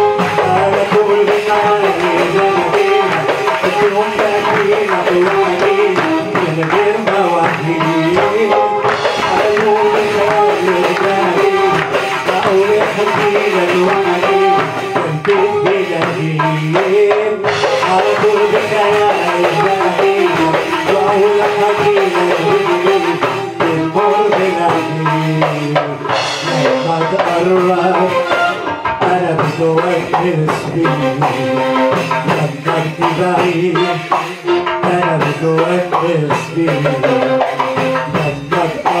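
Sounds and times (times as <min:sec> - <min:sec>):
electronic keyboard melody: 0:00.0 - 0:16.2, 0:26.0 - 0:30.0, 0:30.7 - 0:39.0
drum rhythm: 0:00.0 - 0:39.0
person singing: 0:00.0 - 0:39.0.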